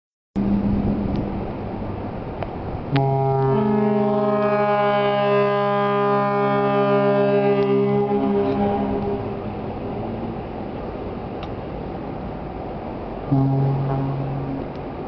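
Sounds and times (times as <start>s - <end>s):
rushing noise: 0.4s - 3.7s, 6.1s - 15.0s
ship horn deep blast: 2.7s - 11.4s, 13.2s - 15.0s.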